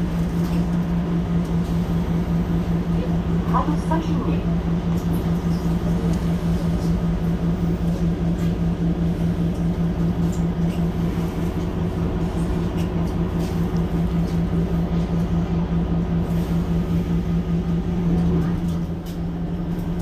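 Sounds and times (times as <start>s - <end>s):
bus diesel engine idling: 0.0s - 20.0s.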